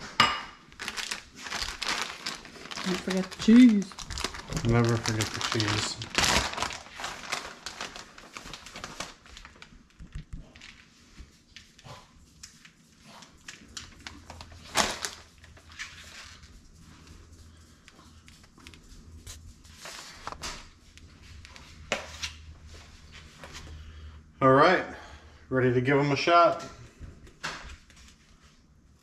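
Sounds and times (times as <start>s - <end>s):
plastic bag rustling: 0.7s - 11.3s, 12.7s - 16.6s.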